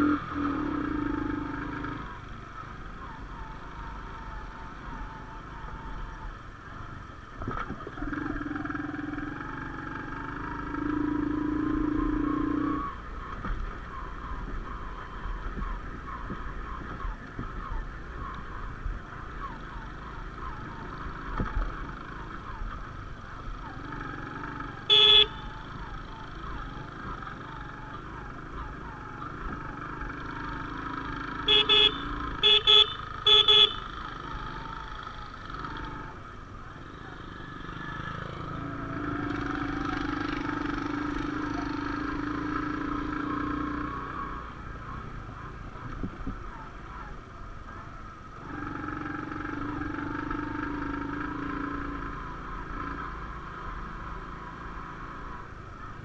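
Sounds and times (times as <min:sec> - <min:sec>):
motorcycle engine running: 0:00.0 - 0:56.0
short horn beeps: 0:24.9 - 0:25.5, 0:31.4 - 0:34.0.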